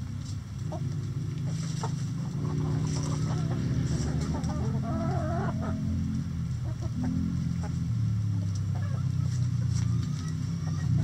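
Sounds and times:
low hum: 0:00.0 - 0:08.6
chickens clucking: 0:00.2 - 0:11.0.

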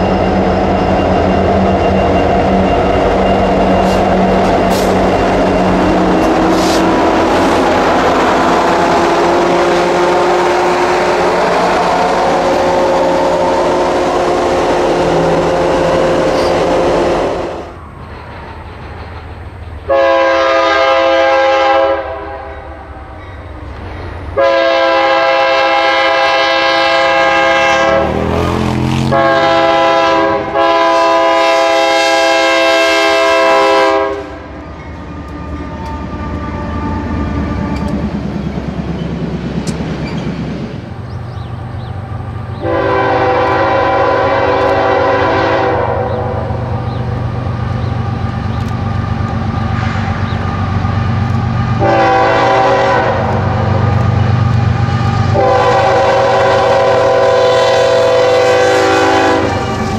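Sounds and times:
train cars rolling: 0:00.0 - 0:59.9
locomotive air horn blasts: 0:08.4 - 0:17.8, 0:19.9 - 0:22.6, 0:24.4 - 0:34.5, 0:42.6 - 0:46.6, 0:51.8 - 0:53.7, 0:55.3 - 0:59.9.

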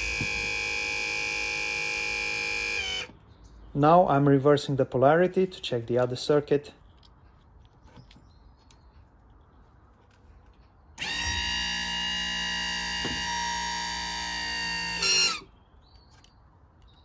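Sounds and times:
hydraulic pump motor whining: 0:00.0 - 0:03.2, 0:11.0 - 0:15.5.

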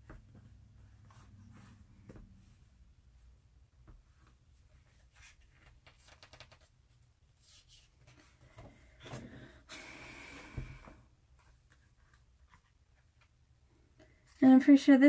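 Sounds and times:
page turning rustle: 0:04.9 - 0:08.5.

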